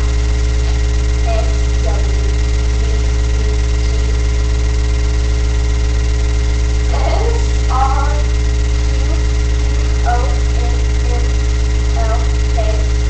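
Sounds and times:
low electrical hum: 0:00.0 - 0:13.0
faint voice: 0:06.9 - 0:11.4.

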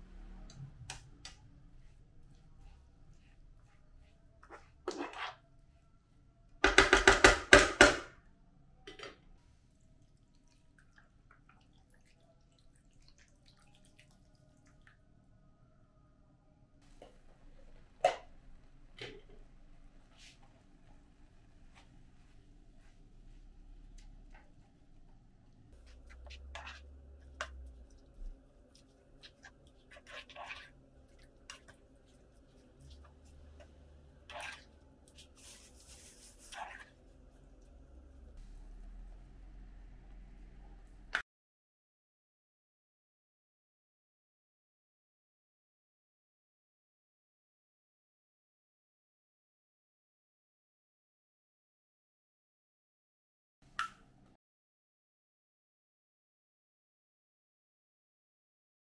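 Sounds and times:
spatula knocking on frying pan: 0:06.6 - 0:08.1.

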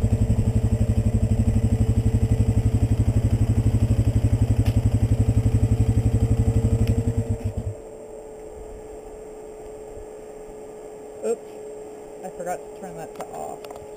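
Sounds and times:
atv engine idling: 0:00.0 - 0:07.8.

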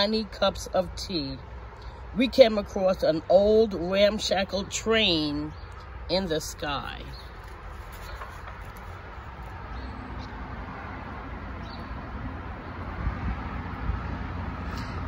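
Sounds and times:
book pages turning: 0:07.1 - 0:09.7.

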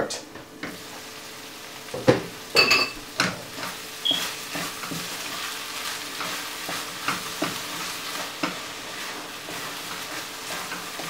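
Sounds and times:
food sizzling in a frying pan: 0:00.5 - 0:11.0
wooden spoon scraping a pan: 0:03.2 - 0:11.0.

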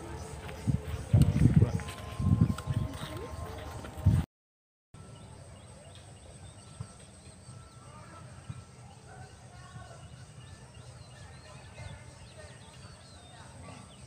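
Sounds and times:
small birds chirping: 0:00.0 - 0:04.2, 0:05.3 - 0:14.0
steady low rumble: 0:00.0 - 0:04.2.

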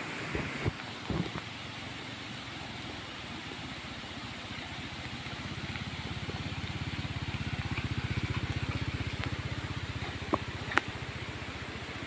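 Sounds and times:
motorcycle engine passing by: 0:04.8 - 0:11.8.

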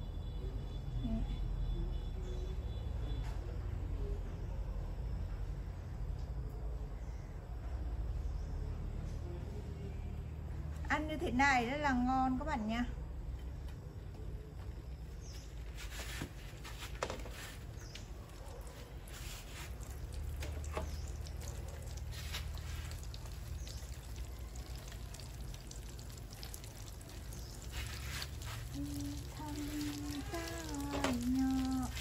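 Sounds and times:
bread frying in oil: 0:13.5 - 0:32.0.

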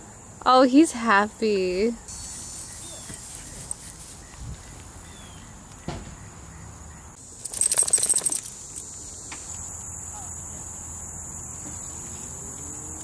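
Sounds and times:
insects trilling: 0:00.0 - 0:13.0
rattle of rapid clicks: 0:07.4 - 0:08.9.

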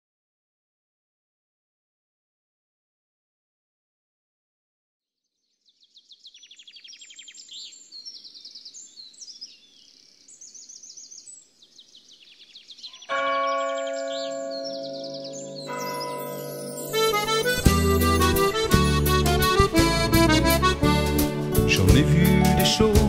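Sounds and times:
birds chirping and trilling: 0:05.3 - 0:19.7
accordion chord: 0:15.1 - 0:23.0.

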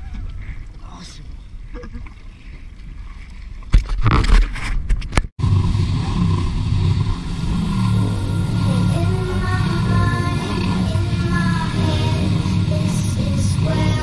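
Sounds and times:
water around hull: 0:00.0 - 0:04.8, 0:05.4 - 0:14.0
jet ski engine: 0:05.4 - 0:14.0.

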